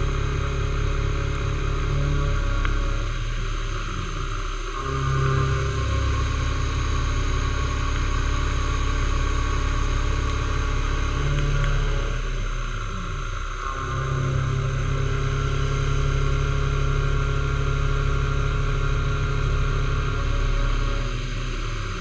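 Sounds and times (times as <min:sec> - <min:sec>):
milling machine motor hum: 0:00.0 - 0:22.0.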